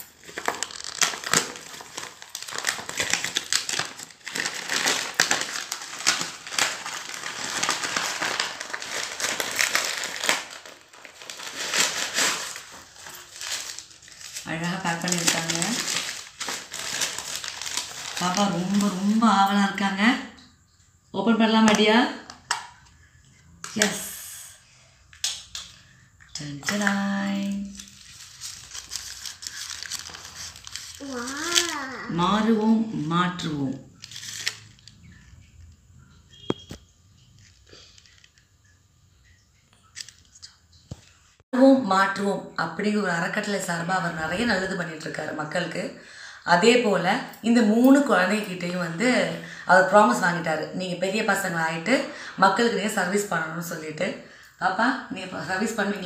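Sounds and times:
plastic and paper crinkling: 0:00.0 - 0:19.6, 0:25.2 - 0:32.1, 0:33.9 - 0:35.4.

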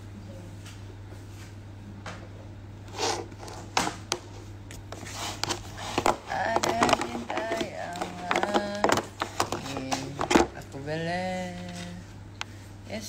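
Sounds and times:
steady low hum: 0:00.0 - 0:13.0
handling rustles and clicks: 0:04.7 - 0:10.6.

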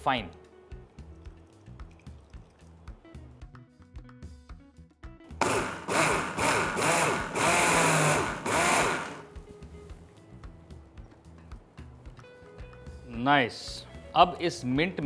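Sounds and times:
mixer grinder motor bursts: 0:05.4 - 0:09.3.

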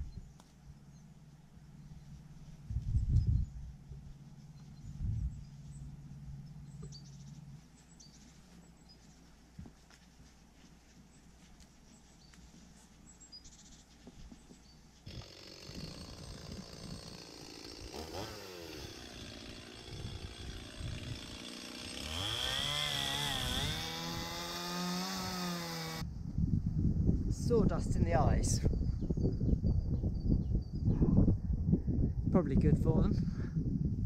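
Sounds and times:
chainsaw revving and cutting: 0:15.1 - 0:26.0.

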